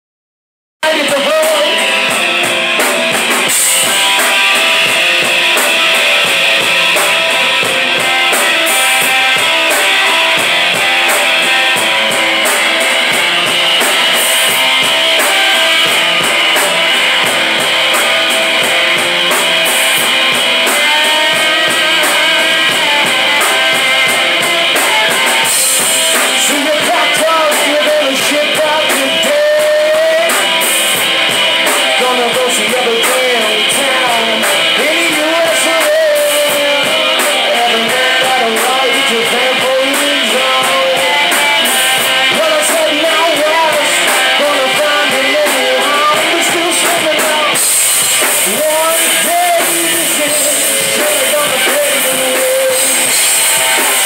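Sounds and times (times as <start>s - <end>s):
drum kit with cymbals: 0.8s - 54.0s
electric bass: 0.8s - 54.0s
electric guitars: 0.8s - 54.0s.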